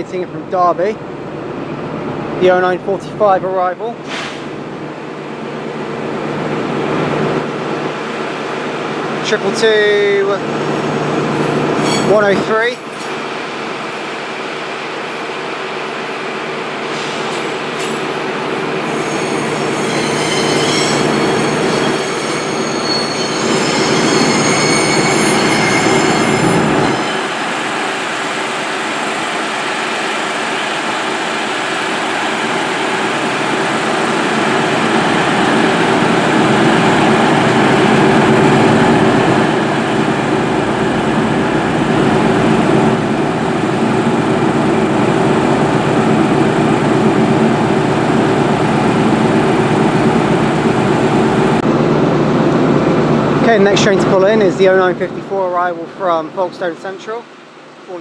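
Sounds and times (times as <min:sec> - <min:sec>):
train wheel squeal: 0:11.4 - 0:13.1, 0:18.7 - 0:27.4.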